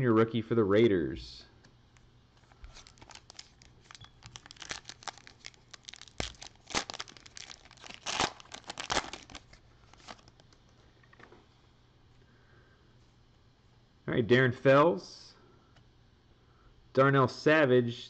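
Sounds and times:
foil wrapper tearing and crinkling: 2.6 - 10.5.

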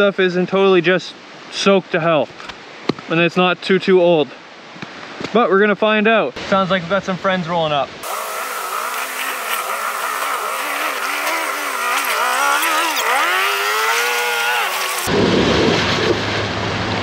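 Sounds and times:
off-road engine revving: 8.0 - 15.3.

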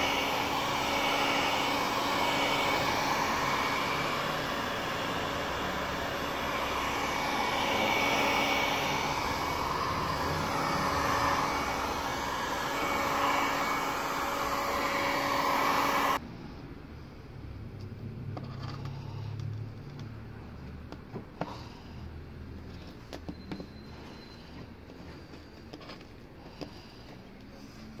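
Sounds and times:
heat gun blowing hot air: 0.0 - 16.2.

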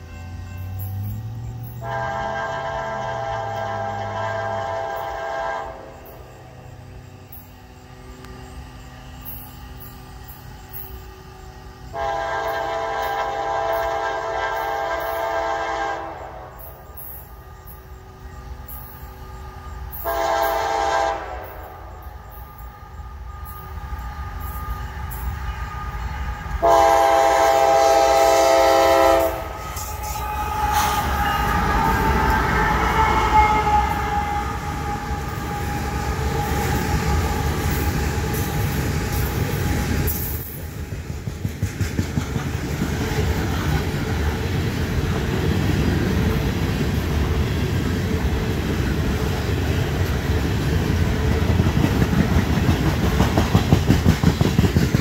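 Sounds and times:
locomotive horn: 0.0 - 40.6
train cars rumbling: 0.0 - 55.0
wheels clattering over rail joints: 33.8 - 55.0.

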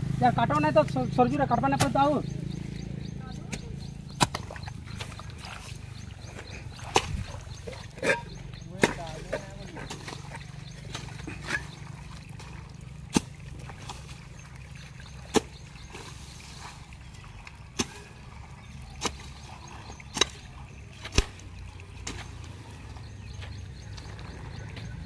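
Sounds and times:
hoe chopping into wet soil: 3.5 - 5.8, 6.8 - 7.3, 13.1 - 14.2, 15.2 - 15.6, 17.8 - 18.1, 18.9 - 22.5.

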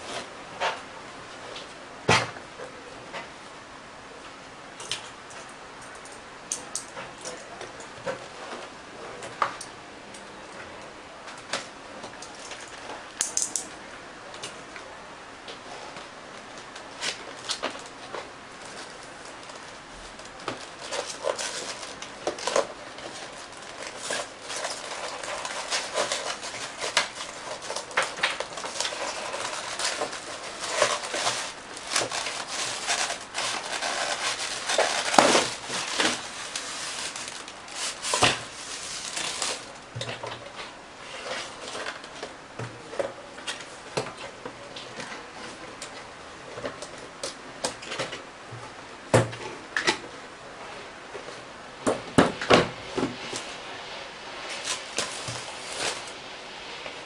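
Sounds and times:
cardboard and packaging rustling: 15.6 - 48.2, 54.3 - 56.2.

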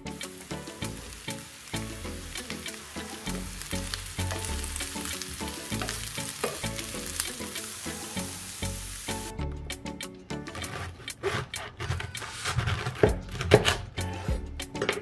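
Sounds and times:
vegetables sizzling in a pan: 0.0 - 9.3
light background music: 0.0 - 15.0
wooden spatula scraping: 10.5 - 14.4.

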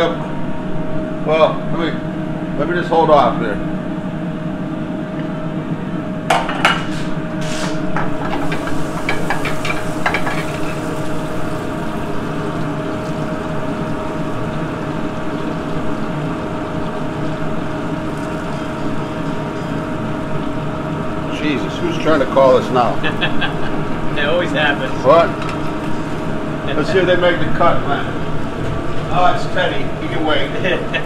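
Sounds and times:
ventilation hum: 0.0 - 31.0
metal pans clanking: 8.0 - 10.8
chicken frying in a pan: 8.2 - 23.9.

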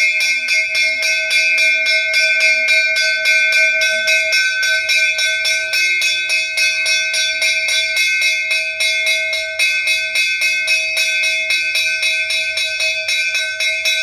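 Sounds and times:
temple bell rung rapidly: 0.0 - 14.0.

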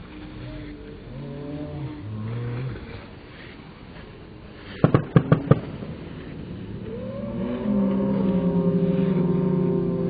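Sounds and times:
deep slowed fireworks bangs: 4.8 - 7.6.

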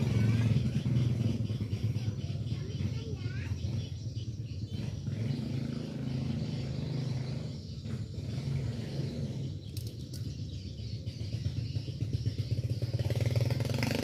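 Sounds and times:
engine low rumble: 0.0 - 14.0.

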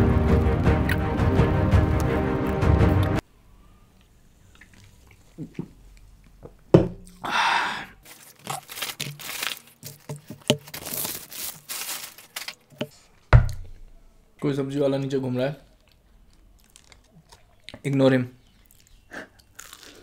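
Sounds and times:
paper wrapper crinkling and tearing: 8.0 - 13.0, 16.3 - 17.6.

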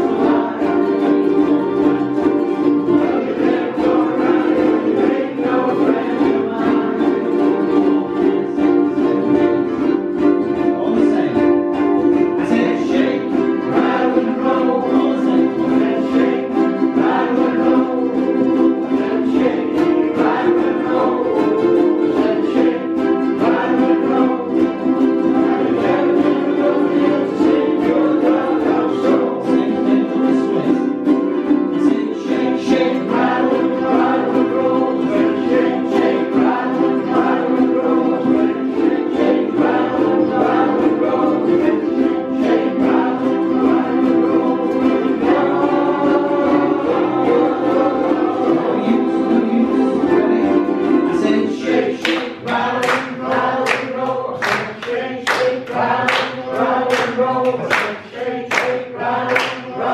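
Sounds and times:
group singing: 0.0 - 59.9
ukuleles strumming: 0.0 - 59.9
rhythmic hand claps: 51.2 - 59.9.

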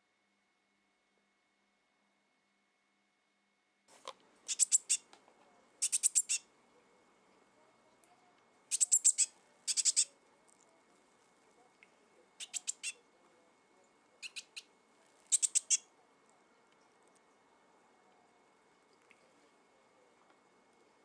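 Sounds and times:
fledgling bird begging calls: 4.5 - 5.1, 5.8 - 6.5, 8.7 - 10.1, 12.4 - 13.0, 14.2 - 14.7, 15.3 - 15.9.

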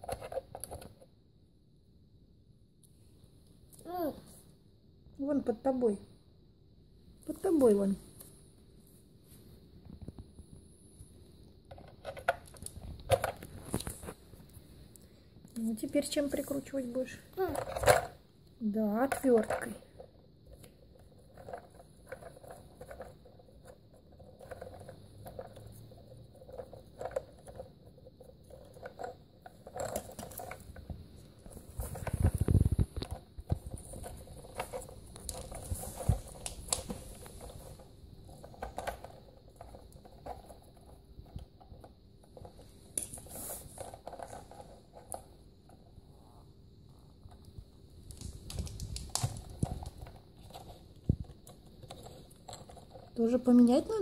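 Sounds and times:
plastic clicks and rattles: 47.4 - 53.7.

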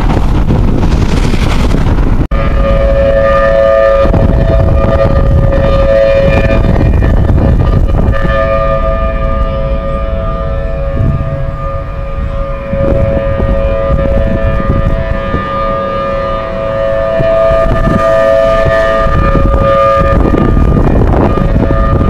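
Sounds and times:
tornado warning sirens: 0.0 - 22.0
wind rumbling on microphone: 0.0 - 22.0.

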